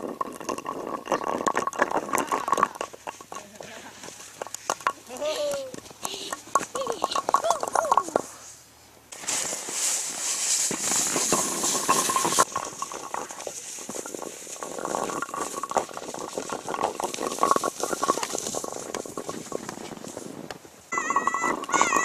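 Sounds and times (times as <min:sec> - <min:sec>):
sled scraping on ice: 0:00.0 - 0:22.0
loud hiss: 0:08.3 - 0:12.4.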